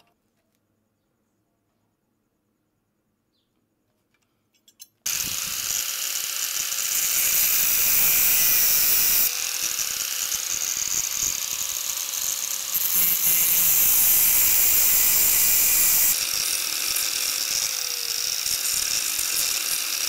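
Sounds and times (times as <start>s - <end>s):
angle grinder cutting steel: 5.1s - 20.0s.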